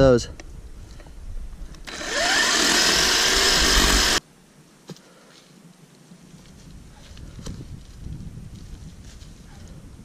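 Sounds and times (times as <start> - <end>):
electric chainsaw cutting log: 1.9 - 4.2.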